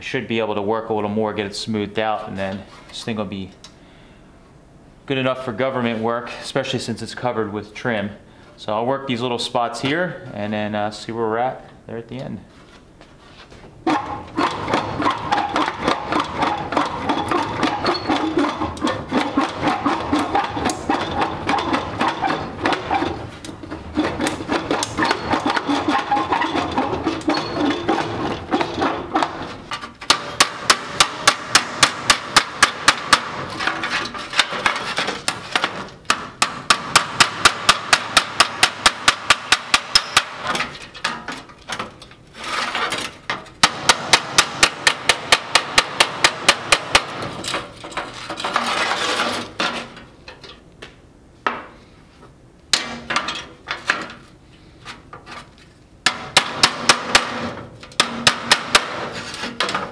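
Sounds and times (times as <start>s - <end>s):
hammer striking metal panel: 13.9s - 41.2s, 43.6s - 47.3s, 56.0s - 59.9s.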